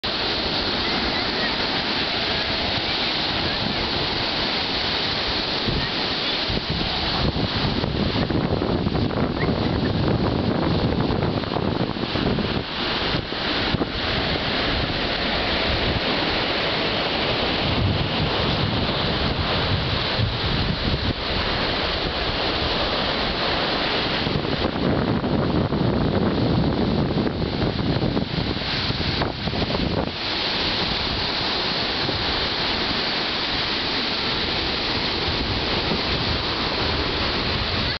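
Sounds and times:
ocean surf breaking: 0:00.0 - 0:38.0
wind buffeting microphone: 0:00.0 - 0:38.0.

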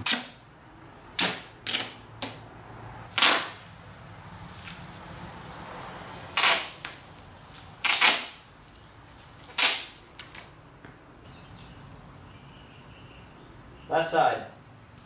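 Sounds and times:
duct tape ripping off roll: 0:00.0 - 0:00.4, 0:01.2 - 0:02.4, 0:03.1 - 0:03.6, 0:06.3 - 0:07.0, 0:07.8 - 0:08.4, 0:09.5 - 0:10.5.

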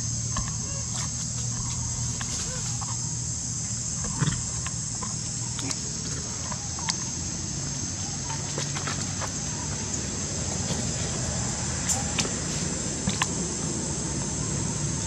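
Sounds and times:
high-pitched insect drone: 0:00.0 - 0:15.0
low steady hum: 0:00.0 - 0:15.0
faint squeaks and rustles: 0:00.3 - 0:03.1.

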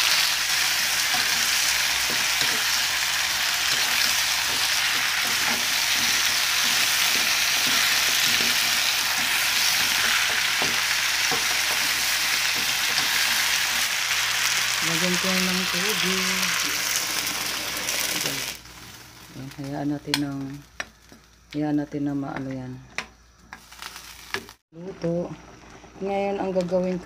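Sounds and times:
food sizzling in a wok: 0:00.0 - 0:22.4, 0:23.2 - 0:26.6
metal ladle scraping: 0:03.4 - 0:13.9.

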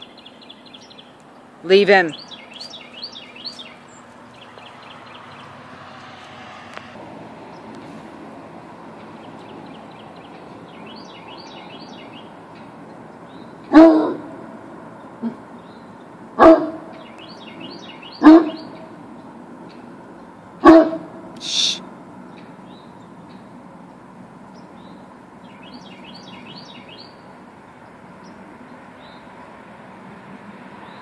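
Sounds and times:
small bird chirping rapidly: 0:01.9 - 0:05.6
dog barking: 0:13.7 - 0:14.4, 0:16.4 - 0:16.9, 0:18.2 - 0:18.8, 0:20.6 - 0:21.2
short hiss: 0:21.4 - 0:21.8.

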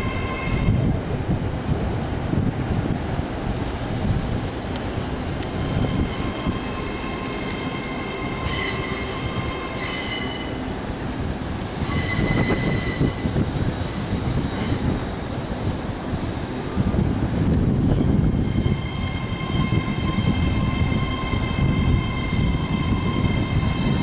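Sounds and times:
low rumble of moving train: 0:00.0 - 0:24.0
train wheels squealing: 0:05.6 - 0:10.6, 0:11.8 - 0:15.3.

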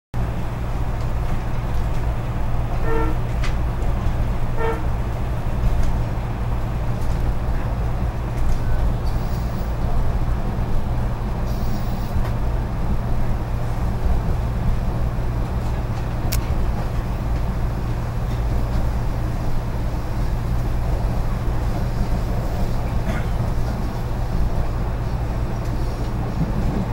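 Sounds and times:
train rumbling: 0:00.2 - 0:26.9
train horn toots: 0:02.7 - 0:03.3, 0:04.5 - 0:05.0.

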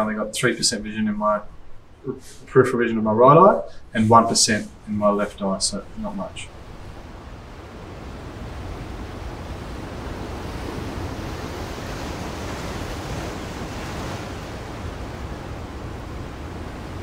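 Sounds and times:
ocean surf rushing: 0:00.0 - 0:17.0.

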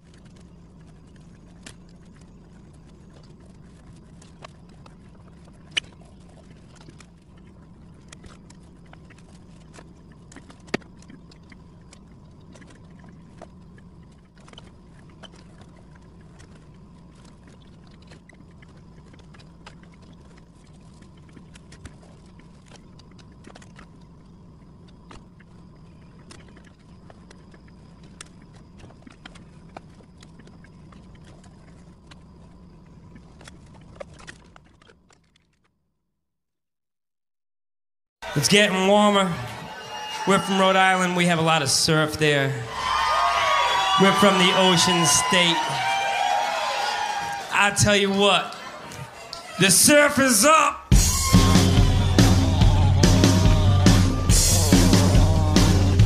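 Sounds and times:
steady low hum: 0:00.0 - 0:34.8, 0:50.8 - 0:56.0.

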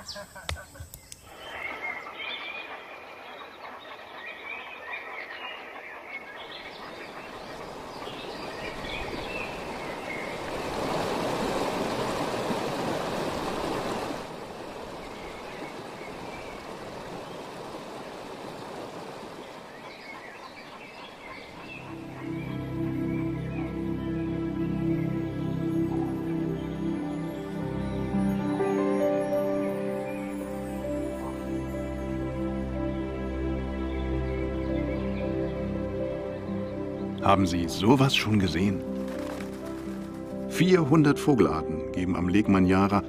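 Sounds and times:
birds calling: 0:00.0 - 0:43.0
stream running over rocks: 0:07.6 - 0:20.2.

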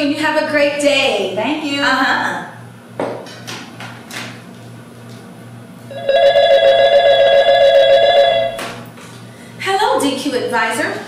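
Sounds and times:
telephone ringing two-tone: 0:05.9 - 0:08.7.

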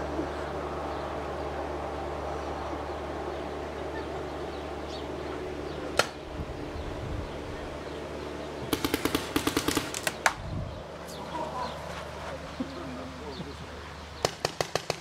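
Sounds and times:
paintball markers firing: 0:06.0 - 0:06.2, 0:08.7 - 0:10.4, 0:14.2 - 0:15.0.

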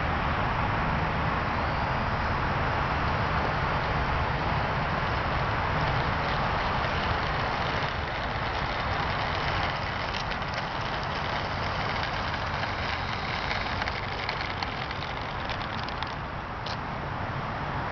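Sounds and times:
model plane electric motors whirring: 0:03.0 - 0:16.8.

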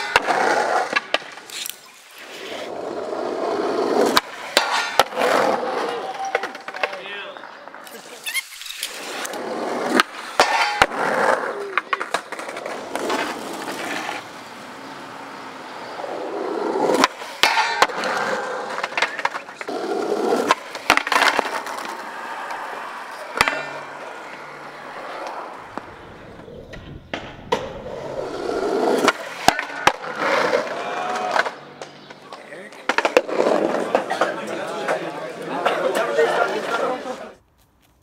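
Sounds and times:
skateboard clacks and slaps: 0:00.0 - 0:01.5, 0:03.9 - 0:07.1, 0:09.0 - 0:14.3, 0:16.7 - 0:36.8
skateboard wheels rolling on concrete: 0:00.0 - 0:38.0
skateboard hitting metal handrail: 0:04.1 - 0:05.2, 0:10.0 - 0:11.0, 0:17.0 - 0:18.0, 0:23.3 - 0:23.9.

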